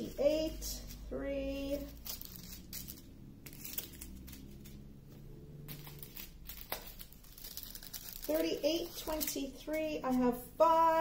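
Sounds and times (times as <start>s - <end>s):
plastic bags crinkling: 1.8s - 4.8s, 5.7s - 9.7s.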